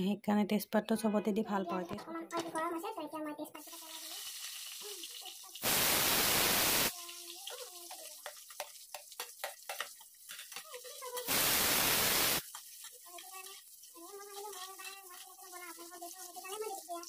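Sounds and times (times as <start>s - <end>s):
loud even hiss bursts: 5.6s - 6.9s, 11.3s - 12.4s
metal spatula clicking on frying pan: 7.4s - 10.8s.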